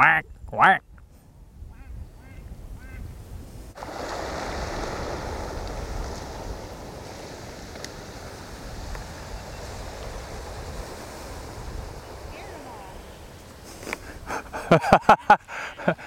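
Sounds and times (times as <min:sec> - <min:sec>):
wind on microphone: 0:00.2 - 0:16.0
faint duck quacks: 0:01.7 - 0:03.1.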